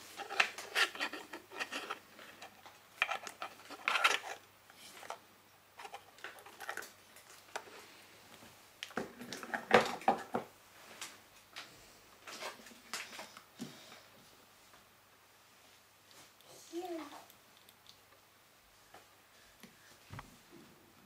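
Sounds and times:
plastic handling clicks and scrapes: 0.0s - 5.2s, 5.8s - 7.8s.

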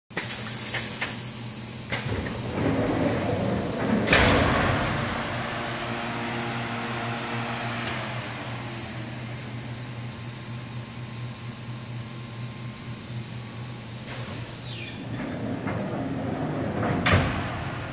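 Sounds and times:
loud rushing hiss: 0.2s - 16.2s
machine humming: 1.5s - 17.9s.

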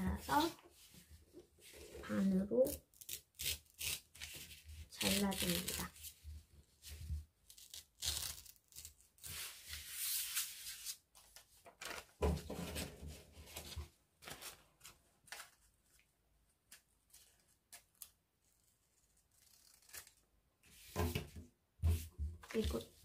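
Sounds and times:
scissors cutting paper: 2.6s - 6.0s, 7.5s - 9.2s, 19.2s - 20.2s
paper rustling and sliding: 9.2s - 15.8s.

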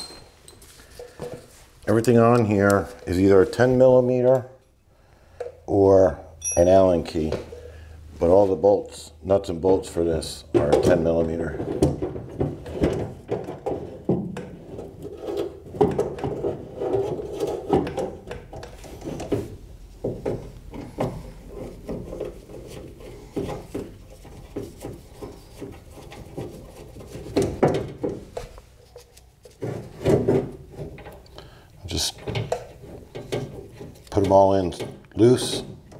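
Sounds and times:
metal parts clunking and scraping: 10.6s - 35.9s.

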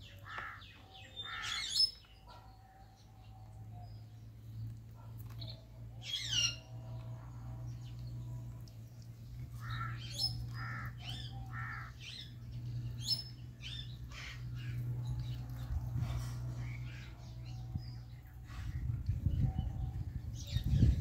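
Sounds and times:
parakeets squawking and chattering: 0.2s - 2.4s, 9.4s - 21.0s
steady low hum: 3.5s - 21.0s.

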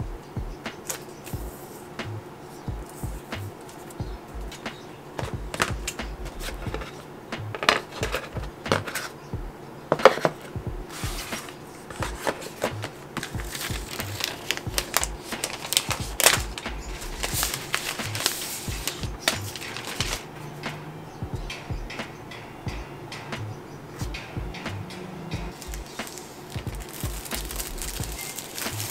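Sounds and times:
soft background music: 0.0s - 28.9s
plastic wrap crinkling: 10.0s - 20.3s, 25.5s - 28.9s.

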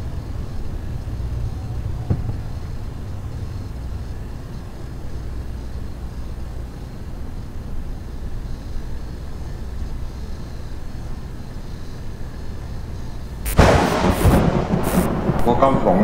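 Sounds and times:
steady low rumble: 13.5s - 16.0s.

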